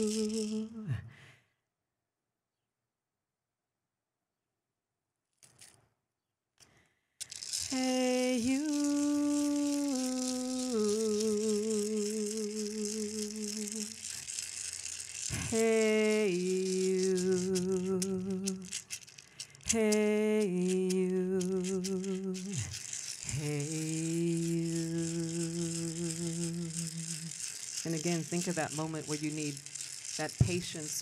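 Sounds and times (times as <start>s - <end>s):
rattle shaking: 0.0s - 0.7s, 5.4s - 5.8s, 7.2s - 31.0s
woman singing a slow chant: 0.0s - 1.0s, 7.7s - 14.0s, 15.3s - 18.7s, 19.7s - 22.7s, 23.3s - 27.3s.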